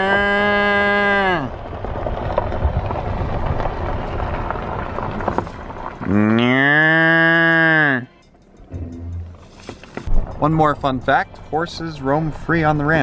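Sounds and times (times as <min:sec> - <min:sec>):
cow mooing: 0:00.0 - 0:01.5, 0:06.0 - 0:08.1
low steady rushing noise: 0:08.5 - 0:13.0.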